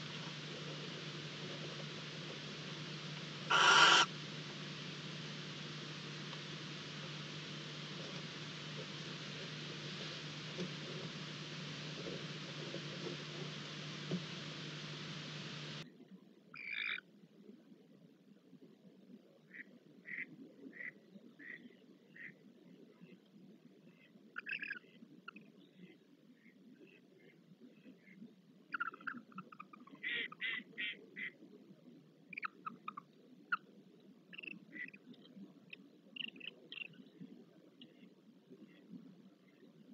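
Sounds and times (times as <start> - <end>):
steady hiss: 0.0 - 15.8
low electrical hum: 0.0 - 39.9
barn owl calls: 3.4 - 4.2.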